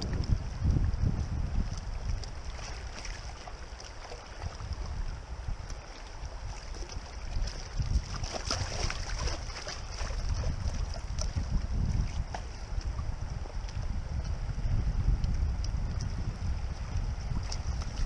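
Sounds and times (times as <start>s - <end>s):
river water rushing and gurgling: 0.0s - 18.0s
wind rumble on microphone: 0.0s - 18.0s.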